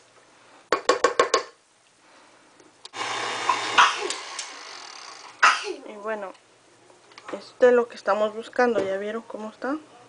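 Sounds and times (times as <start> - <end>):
mixer clack: 3.0 - 4.6
stand mixer humming: 3.0 - 5.4.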